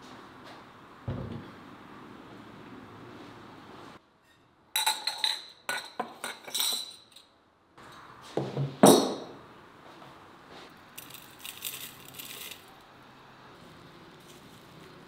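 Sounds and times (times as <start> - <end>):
glasses clinking: 4.8 - 7.2.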